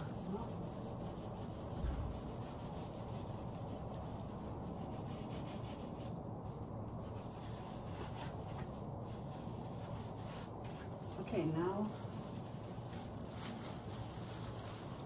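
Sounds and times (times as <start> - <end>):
fingers rubbing paint on canvas: 0.0 - 13.1.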